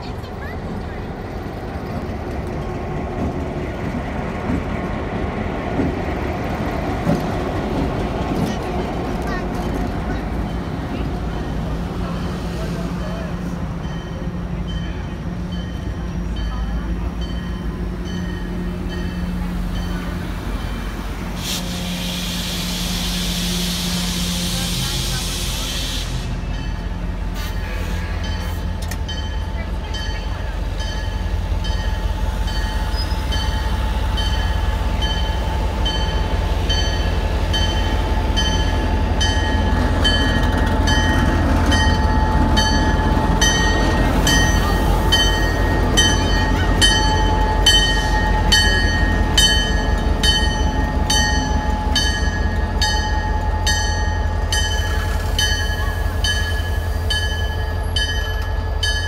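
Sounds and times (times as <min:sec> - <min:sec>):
diesel locomotive engine running: 0:00.0 - 0:59.0
crossing bell ringing: 0:13.7 - 0:20.9, 0:26.4 - 0:27.2, 0:28.1 - 0:59.0.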